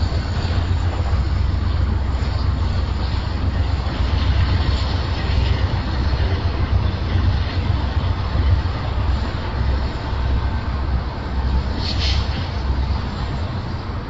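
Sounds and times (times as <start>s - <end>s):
freight train rumbling past: 0.0s - 14.0s
wind noise on microphone: 0.0s - 14.0s.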